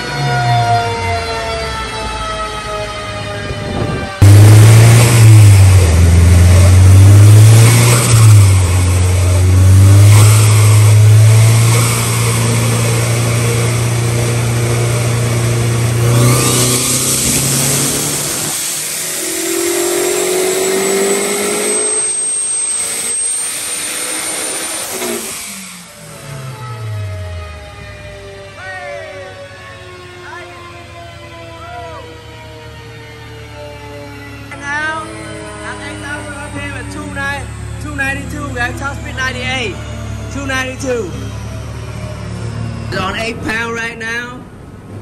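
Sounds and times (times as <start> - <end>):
car engine revving: 3.4 - 28.7, 33.2 - 45.0
thin high whistle: 19.5 - 25.6.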